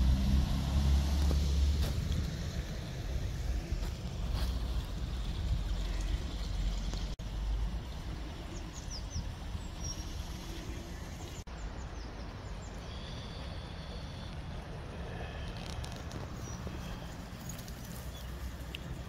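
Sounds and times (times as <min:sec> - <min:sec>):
small birds chirping: 0:04.3 - 0:07.2, 0:07.8 - 0:19.0.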